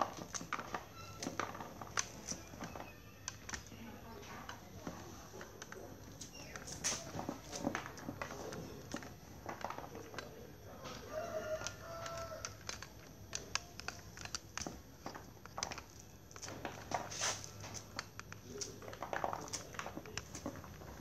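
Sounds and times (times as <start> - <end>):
rooster crowing: 10.8 - 12.7
corn kernels clicking into plastic bowl: 10.9 - 21.0.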